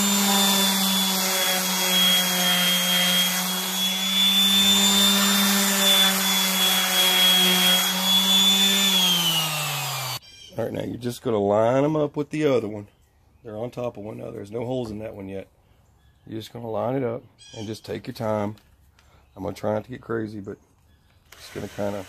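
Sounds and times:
orbital sander running on wood: 0.0s - 10.2s.

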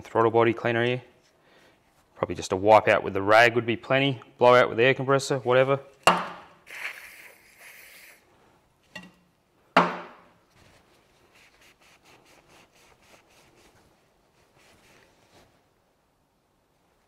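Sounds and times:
aerosol spray hiss: 6.7s - 8.2s.

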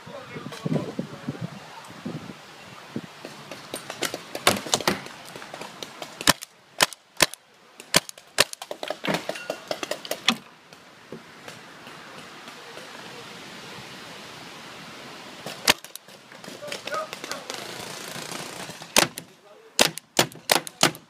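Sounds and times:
paintball markers firing: 6.2s - 8.8s, 15.7s - 16.0s, 18.9s - 21.0s.

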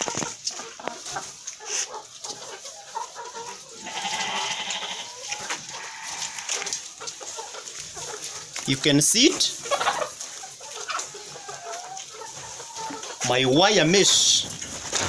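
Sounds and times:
hens clucking and calling: 0.0s - 15.0s
rustling: 3.9s - 15.0s.

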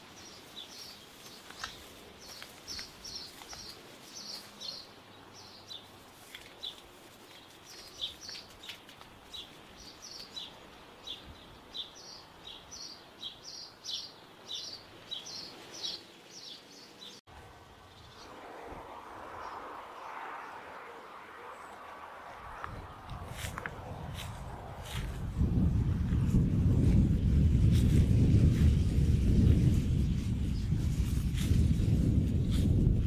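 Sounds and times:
faint outdoor background noise: 0.0s - 33.0s
bird chirping: 0.1s - 5.9s, 6.5s - 17.2s.

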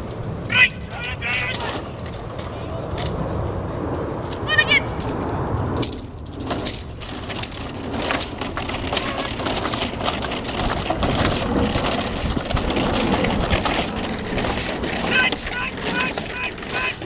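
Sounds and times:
plastic jugs crinkling rattle: 0.0s - 3.1s, 5.8s - 17.0s.

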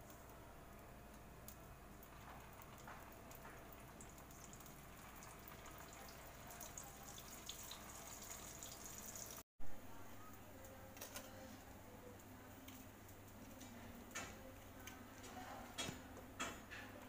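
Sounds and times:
food sizzling in oil: 2.2s - 9.4s.

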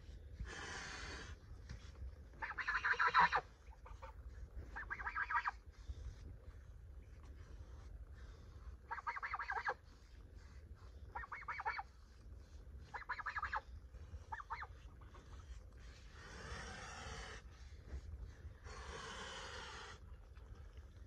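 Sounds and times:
geese honking: 2.4s - 3.4s, 4.8s - 5.5s, 8.9s - 9.8s, 11.2s - 11.8s, 12.9s - 13.6s
goose hissing: 15.8s - 17.5s, 18.6s - 20.0s.

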